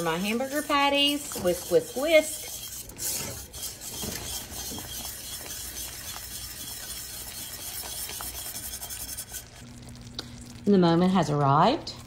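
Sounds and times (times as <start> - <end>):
whisk scraping metal pot: 0.0 - 9.6.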